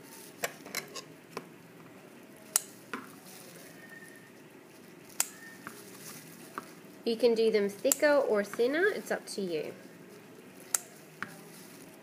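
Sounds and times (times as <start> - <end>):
scissors snipping plastic bag: 5.1 - 6.7.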